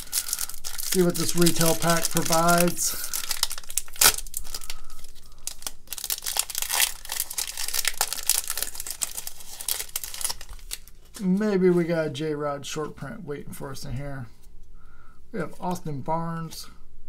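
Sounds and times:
foil wrapper crinkling and tearing: 0.0s - 11.4s.

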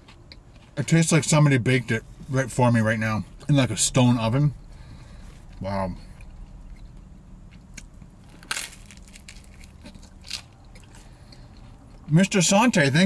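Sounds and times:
steady low hum: 0.0s - 13.0s
crunchy pizza chewing: 4.8s - 12.2s.

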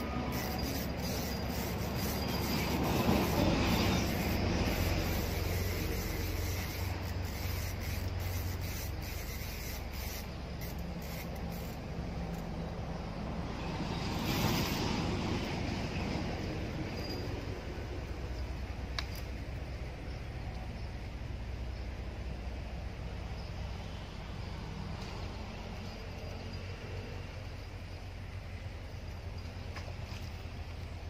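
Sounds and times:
fishing reel cranking: 0.0s - 11.9s
outdoor noise: 0.0s - 31.0s.

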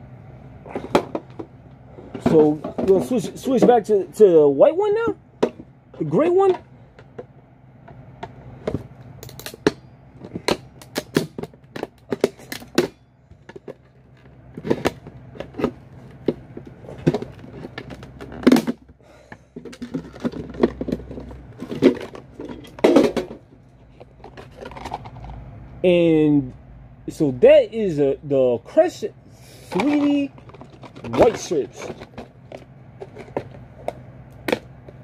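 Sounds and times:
plastic lid rattling: 19.6s - 23.4s, 29.8s - 33.6s.

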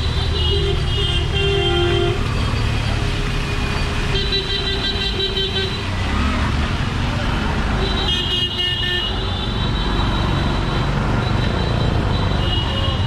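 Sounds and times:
car horns tooting: 0.0s - 2.2s
vehicle engines running: 0.0s - 8.1s.

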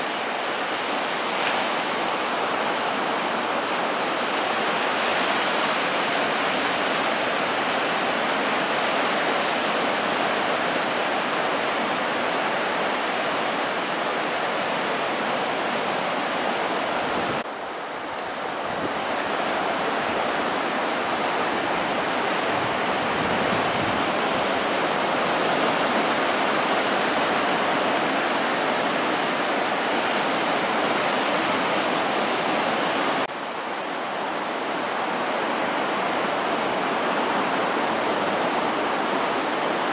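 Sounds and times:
surf washing onto beach: 0.0s - 39.9s.

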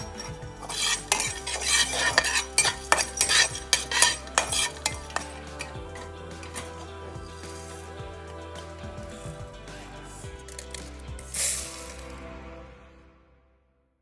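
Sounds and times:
metal spatula scraping a pan: 0.0s - 8.0s
soft background music: 0.0s - 13.7s.

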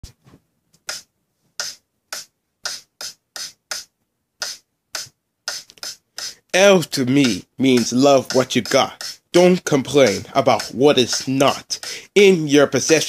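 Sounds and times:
crisp percussive hits: 7.0s - 11.9s.

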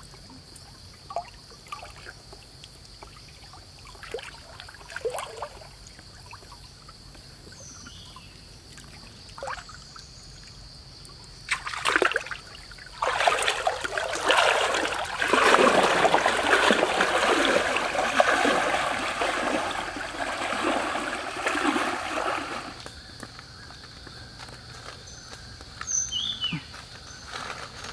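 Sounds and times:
fish splashing in stream water: 11.5s - 22.9s.

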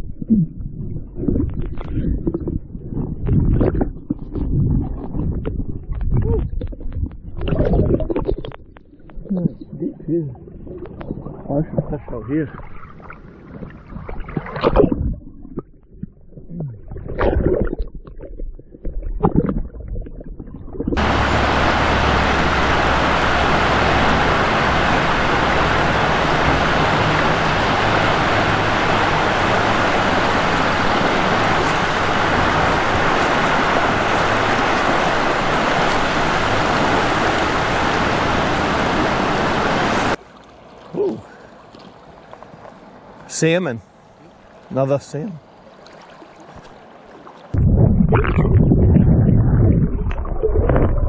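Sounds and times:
water splashing at camera: 0.0s - 51.0s
river current rushing: 21.0s - 42.2s.

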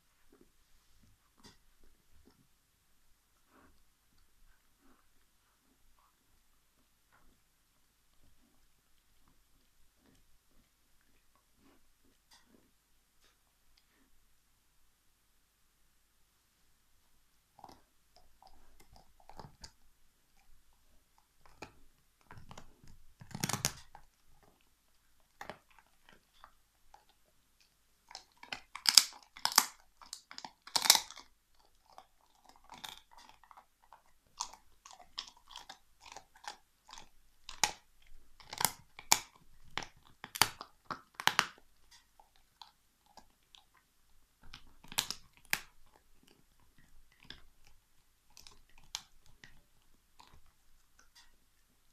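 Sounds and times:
dog crunching bone: 17.5s - 51.4s
dog gnawing: 17.5s - 51.9s.

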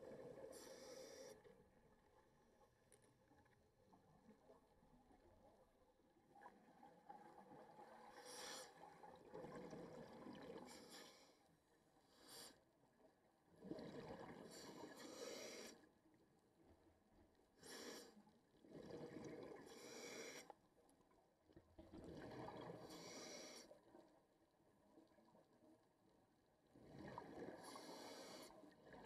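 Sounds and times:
exhaled bubbles gurgling: 6.3s - 10.9s, 13.5s - 15.6s, 18.6s - 20.4s, 21.7s - 23.6s, 26.7s - 29.0s
scuba regulator breathing underwater: 14.4s - 15.8s, 17.6s - 18.2s, 19.6s - 20.5s, 22.8s - 23.7s, 27.4s - 28.6s.

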